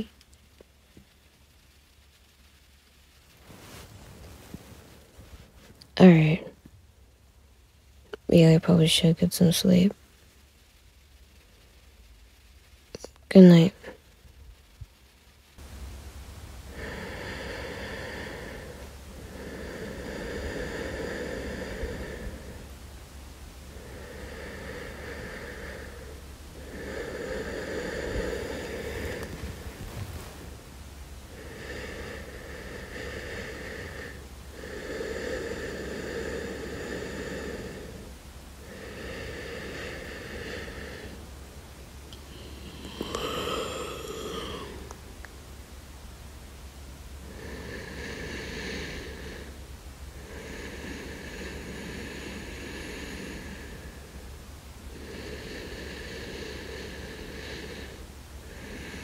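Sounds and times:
steady low hum: 0.0 - 59.0
person breathing slowly: 3.4 - 6.6, 16.6 - 22.8, 23.6 - 30.6, 31.2 - 41.4, 42.1 - 45.2, 47.2 - 59.0.

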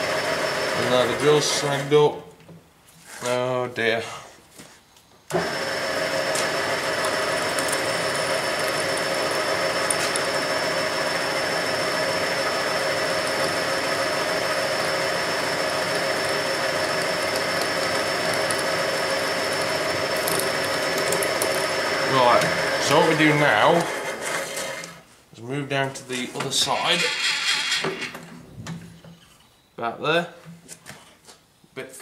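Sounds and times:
lathe machine hum: 0.0 - 1.6, 5.3 - 24.9
high drill whine: 0.0 - 1.7, 5.3 - 24.2.

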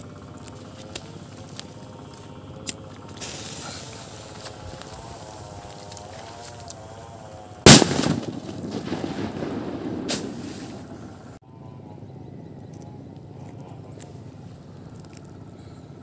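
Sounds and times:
fuse hissing: 0.0 - 11.4
firecracker loud bang: 7.6 - 11.2.

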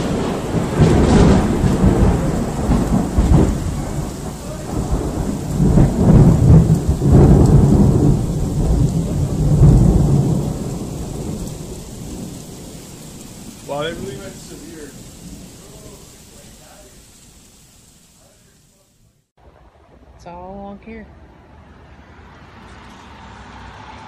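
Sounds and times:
loud thunder rumbling and cracking: 0.0 - 17.6
steady rain: 0.0 - 21.6.

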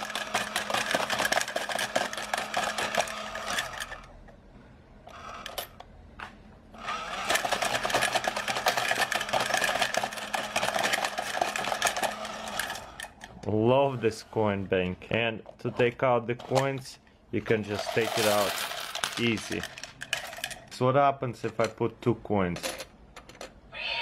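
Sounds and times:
motor and gears whirring: 0.0 - 4.1, 5.1 - 5.7, 6.7 - 13.3.

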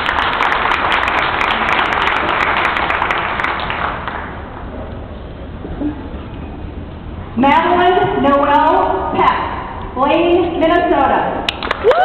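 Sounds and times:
audience applauding: 0.0 - 4.5, 11.5 - 12.0.

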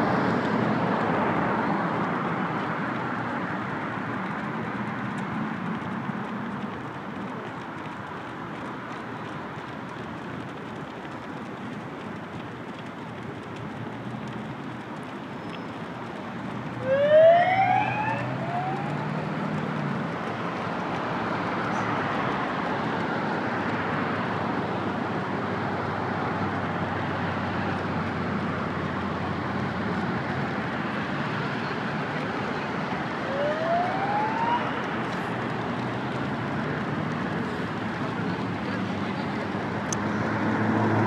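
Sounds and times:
vehicle engine humming: 0.0 - 41.0
siren whoops: 16.8 - 19.1, 33.1 - 34.9.

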